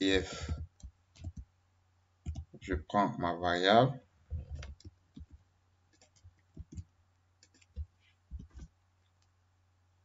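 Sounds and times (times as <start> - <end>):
keyboard typing clicks: 0.4 - 1.5, 2.2 - 2.6, 6.0 - 8.7.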